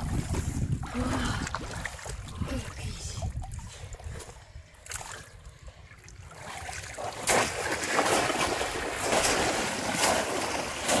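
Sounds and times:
water splashing: 4.8 - 11.0.

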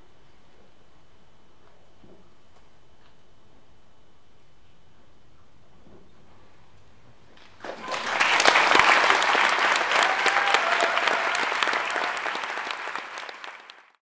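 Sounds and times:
audience applauding: 7.4 - 14.0.

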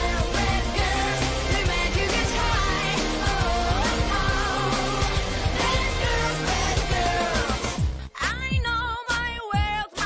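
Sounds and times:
pop song with steady beat: 0.0 - 10.0.

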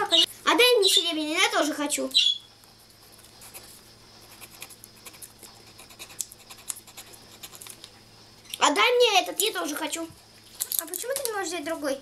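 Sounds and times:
marker scratching on paper: 3.1 - 7.7.

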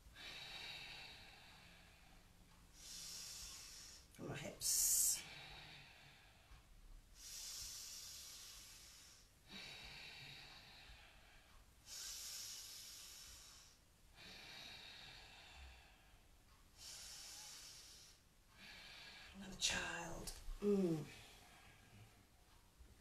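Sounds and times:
hissing breaths through nose: 2.8 - 4.1, 7.2 - 11.1.

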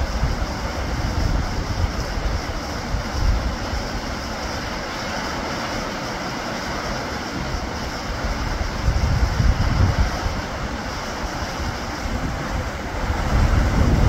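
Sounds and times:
heavy rain on foliage: 0.0 - 14.0
wind rumble on microphone: 0.0 - 14.0.

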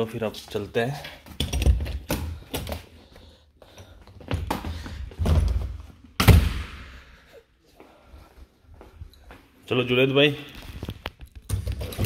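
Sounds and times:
door slamming with echo: 6.2 - 7.0.

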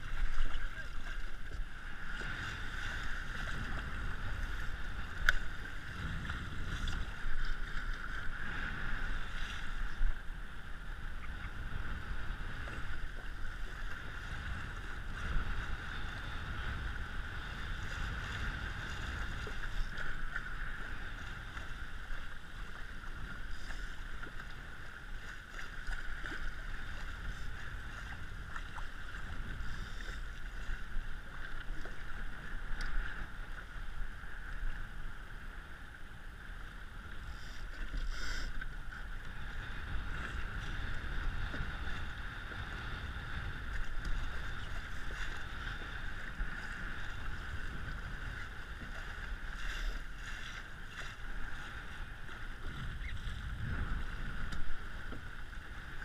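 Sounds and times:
wind buffeting microphone: 0.0 - 35.5, 38.7 - 56.0
water rushing along hull: 0.0 - 56.0.

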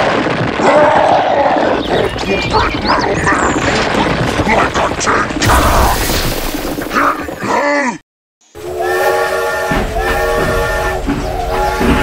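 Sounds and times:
dense crashing noise: 0.0 - 7.4.

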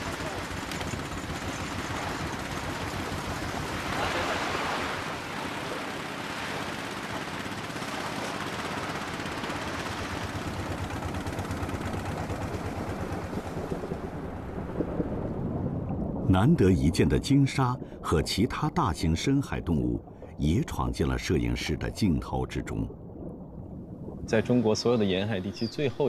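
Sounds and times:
boat engine pulsing: 0.0 - 15.0
wind and sea hiss: 0.0 - 15.6, 16.3 - 22.9, 24.1 - 26.0.

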